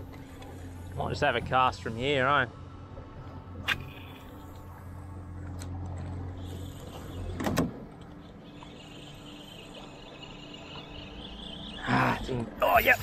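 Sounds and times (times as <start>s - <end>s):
fishing reel whirring: 6.3s - 13.0s.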